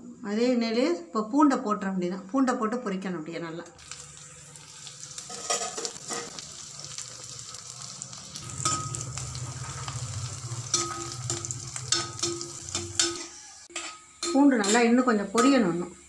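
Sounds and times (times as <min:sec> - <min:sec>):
garlic sizzling in oil: 0:03.8 - 0:16.0.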